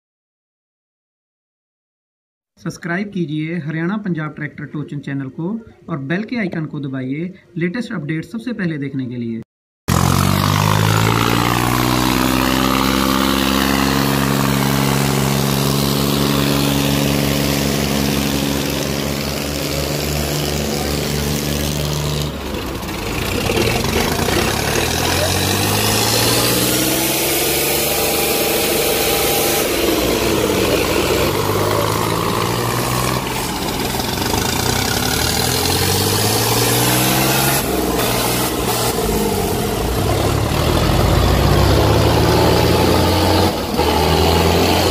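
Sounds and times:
diesel engine revving: 9.9s - 44.9s
tractor engine running: 9.9s - 44.9s.

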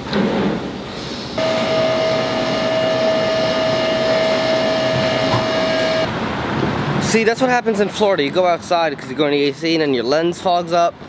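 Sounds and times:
blender motor whining: 1.4s - 6.1s.

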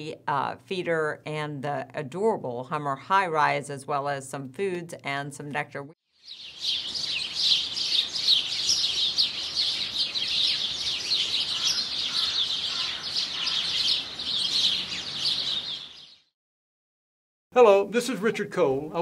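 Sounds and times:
songbirds chirping: 6.1s - 16.3s.

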